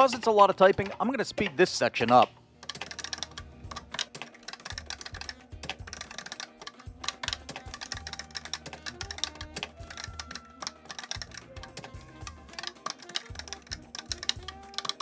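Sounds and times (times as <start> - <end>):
fast keyboard typing: 2.6 - 15.0
background music with bass line: 2.8 - 4.0, 4.8 - 15.0.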